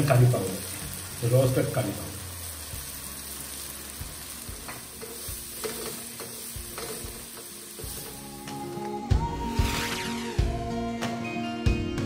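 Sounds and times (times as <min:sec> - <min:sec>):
frying sizzle: 0:00.0 - 0:10.4
faint music: 0:00.0 - 0:12.0
spatula knocking and scraping wok: 0:04.5 - 0:08.2.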